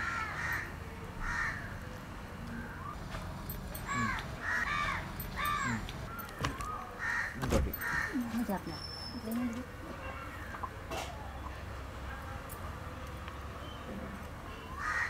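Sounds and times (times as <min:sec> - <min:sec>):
crows cawing: 0:00.0 - 0:01.8, 0:03.8 - 0:05.9, 0:07.0 - 0:08.4, 0:14.8 - 0:15.0.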